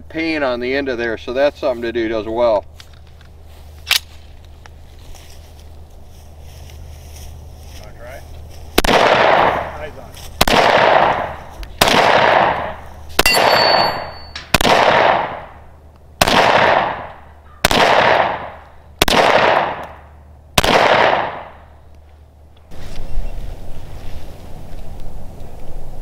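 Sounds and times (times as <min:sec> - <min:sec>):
pistol shots with echo: 0:08.8 - 0:15.6, 0:16.2 - 0:20.0, 0:20.6 - 0:21.7.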